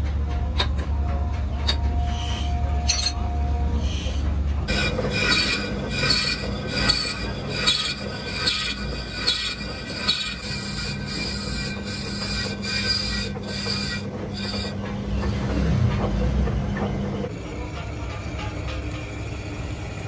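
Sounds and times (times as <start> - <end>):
metal lathe humming: 2.8 - 15.2
cutting tool squealing on steel: 3.8 - 14.8.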